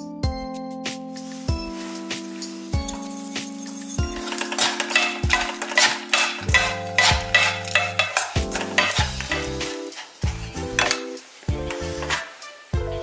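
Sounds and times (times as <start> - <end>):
background music: 0.0 - 13.0
spoons scraping food in wok: 2.7 - 12.7.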